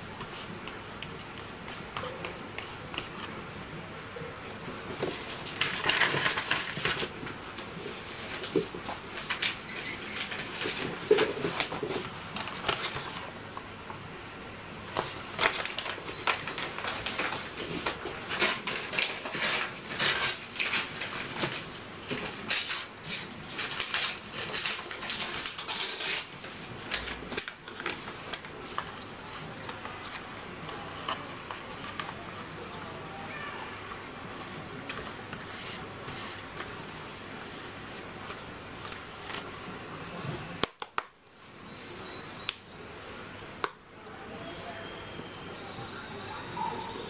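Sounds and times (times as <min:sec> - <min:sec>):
paper rustling: 0:00.0 - 0:13.4, 0:14.9 - 0:32.7, 0:34.3 - 0:40.7.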